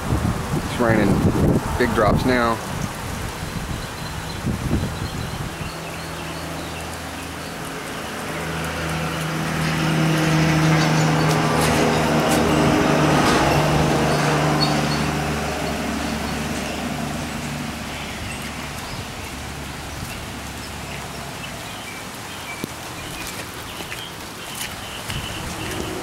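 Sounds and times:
gusting wind: 0.0 - 26.0
steady rain: 0.0 - 26.0
vehicle engine hum: 5.6 - 26.0.

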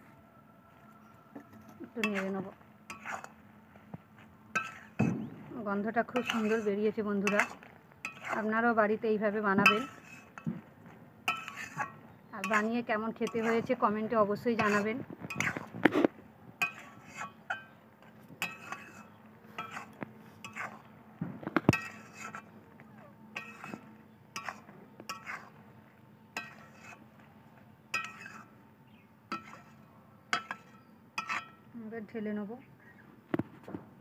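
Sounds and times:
metal spatula scraping metal pan: 1.4 - 3.4, 4.5 - 10.5, 11.3 - 20.9, 21.6 - 22.6, 23.3 - 25.6, 26.4 - 27.1, 27.9 - 28.6, 29.3 - 31.6.

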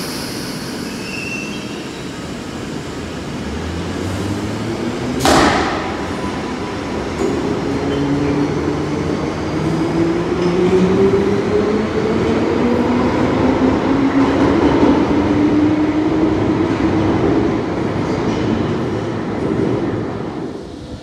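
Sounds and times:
wheels rumbling on rail: 1.8 - 21.0.

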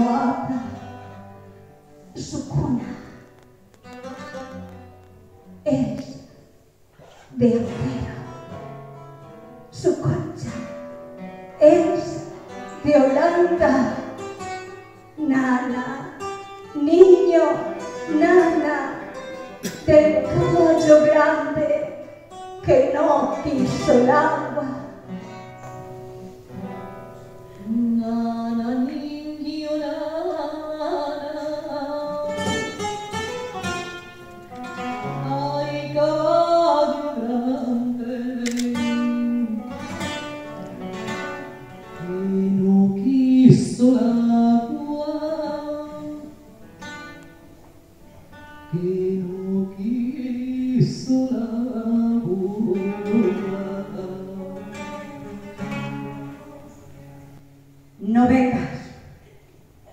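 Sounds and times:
woman singing slow song: 0.0 - 1.2, 11.6 - 14.2, 15.2 - 25.0, 27.6 - 32.9, 34.7 - 39.9, 41.9 - 46.5, 48.7 - 57.0
plucked classical guitar: 0.0 - 59.0.

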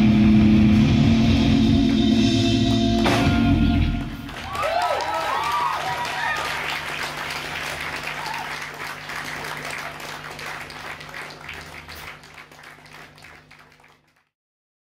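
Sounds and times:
low hum: 0.0 - 4.4
audience applauding: 3.8 - 14.3.

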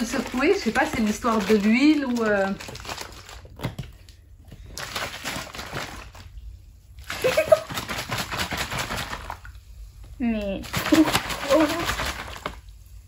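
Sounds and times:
liquid sloshing in plastic bottle: 10.6 - 12.8.

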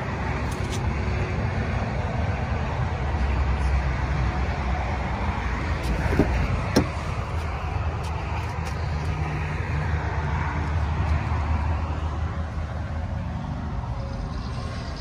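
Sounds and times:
low vehicle rumble: 0.0 - 15.0
car door unlatching and opening: 5.8 - 7.1.

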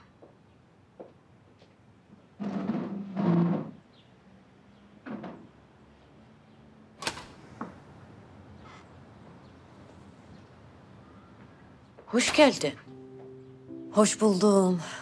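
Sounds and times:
sharp clicks: 7.0 - 7.7.

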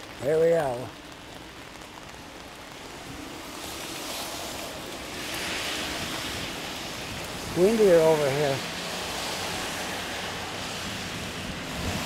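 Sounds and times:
steady rain: 0.0 - 12.0
wind gusting over microphone: 3.0 - 12.0.

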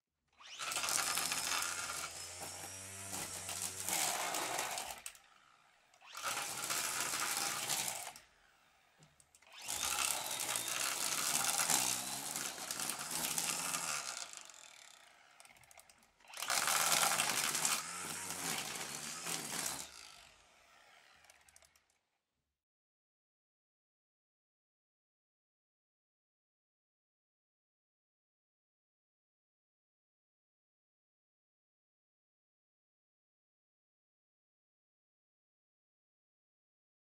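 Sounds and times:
brush cutter running: 0.4 - 21.8.

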